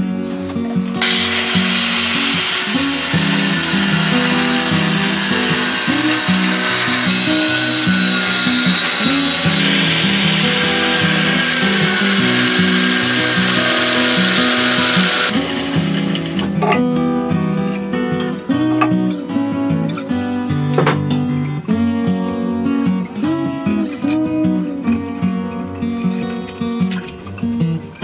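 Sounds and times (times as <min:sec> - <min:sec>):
background music: 0:00.0 - 0:28.0
angle grinder cutting metal: 0:01.0 - 0:16.8.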